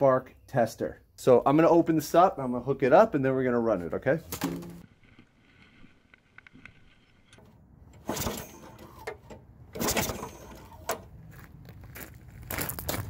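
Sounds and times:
recoil starter pulls: 7.3 - 11.1
lawnmower engine running: 7.4 - 11.2.

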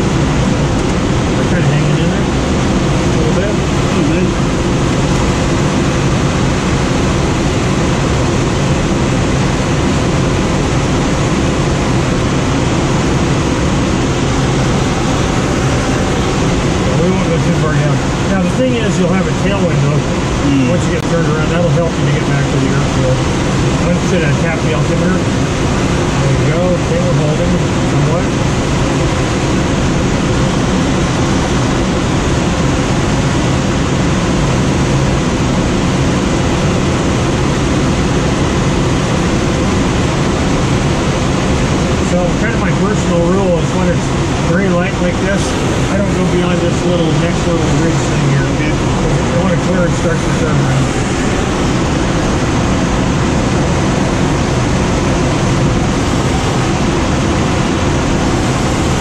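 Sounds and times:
rush of air over glider cockpit: 0.0 - 59.0.

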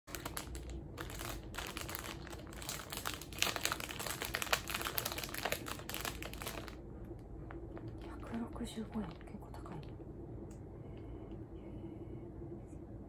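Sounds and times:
plastic wrapper crinkling: 0.1 - 6.9.

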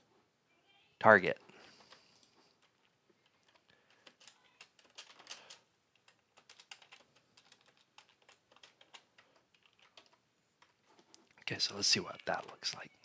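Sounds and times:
typing on computer keyboard: 1.9 - 11.2.

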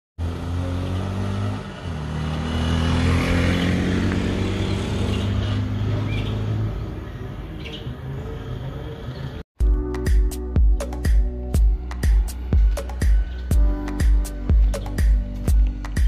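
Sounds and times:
vehicle engine passing: 0.2 - 9.4.

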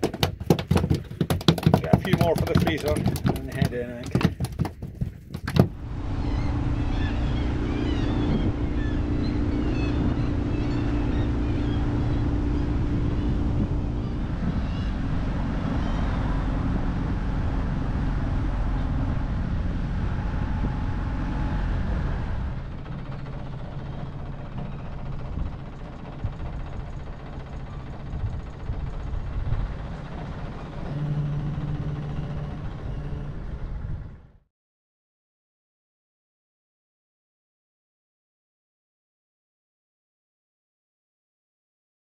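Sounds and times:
sharp knocks: 0.0 - 5.8
small boat engine running: 0.0 - 34.4.

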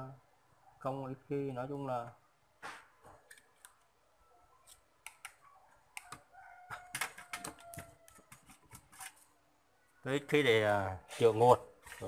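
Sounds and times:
small parts and tools clicking: 6.0 - 9.3.

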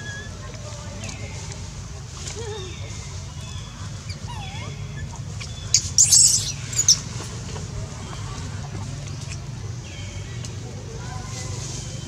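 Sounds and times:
baby monkey squealing: 4.1 - 7.0.

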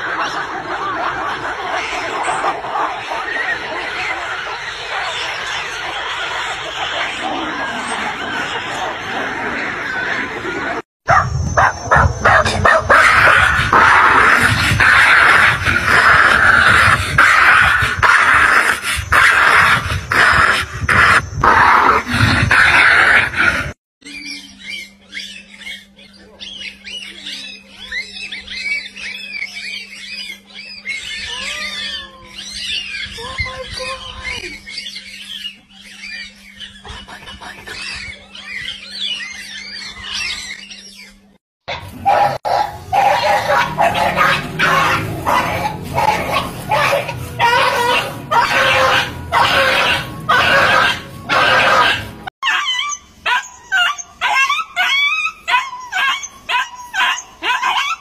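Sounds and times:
dogs fighting: 0.0 - 23.8, 41.7 - 58.0
dog yelping and whimpering: 11.1 - 13.5, 41.7 - 58.0
mongooses chirping: 24.0 - 58.0.

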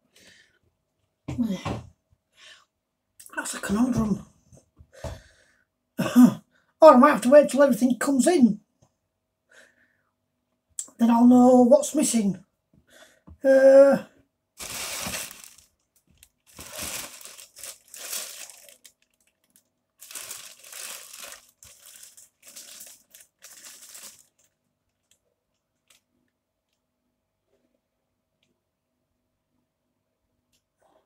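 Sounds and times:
plastic-wrapped parcel crinkling: 14.6 - 25.2.

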